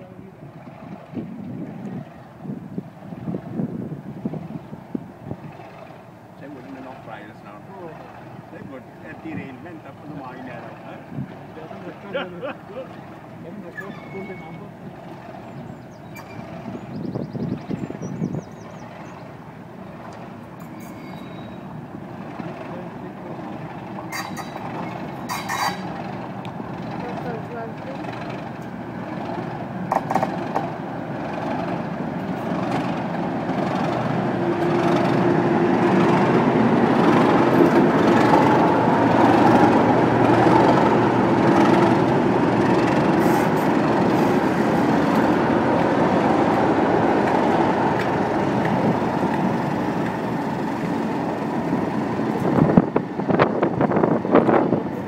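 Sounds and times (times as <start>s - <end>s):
diesel locomotive engines purring: 0.0s - 55.0s
train wheel clicks: 23.4s - 53.5s.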